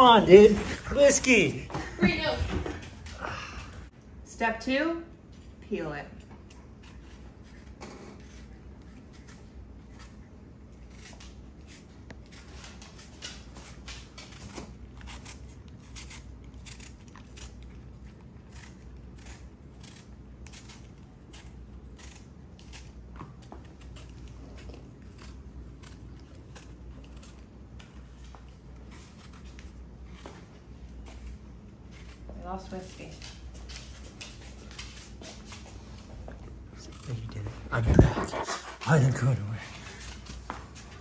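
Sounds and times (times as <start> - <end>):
peeler cutting apple skin: 6.8 - 27.9.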